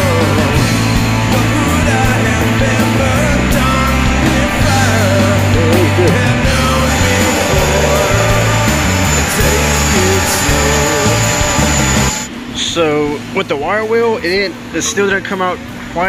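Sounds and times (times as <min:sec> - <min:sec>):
rock music: 0:00.0 - 0:12.3.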